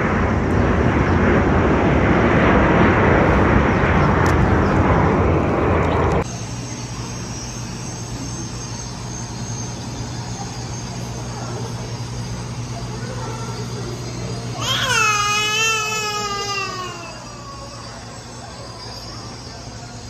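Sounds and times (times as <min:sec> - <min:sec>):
airplane passing low overhead: 0:00.0 - 0:20.0
steady machine hum: 0:00.0 - 0:20.0.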